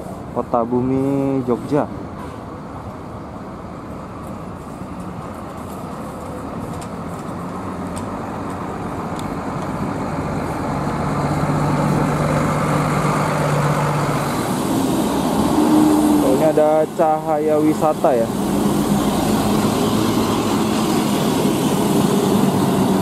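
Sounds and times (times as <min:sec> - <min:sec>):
bus diesel engine passing: 0:00.0 - 0:23.0
low engine drone: 0:05.6 - 0:23.0.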